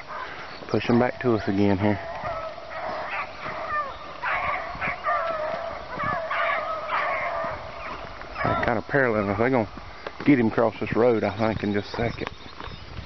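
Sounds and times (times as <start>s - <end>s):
pack of hounds baying: 1.0s - 9.8s.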